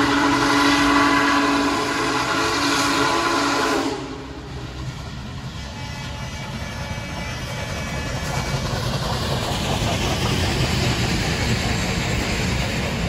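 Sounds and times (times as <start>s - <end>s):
steam whistle: 0.0s - 4.6s
steam locomotive rumbling past: 0.0s - 13.0s.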